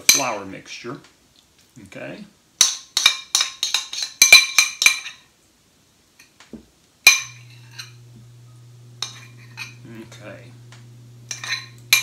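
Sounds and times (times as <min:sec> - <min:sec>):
metal utensil scraping glass bowl: 0:03.0 - 0:05.2, 0:07.1 - 0:08.1, 0:09.0 - 0:10.0, 0:11.2 - 0:12.0
low steady hum: 0:07.0 - 0:12.0.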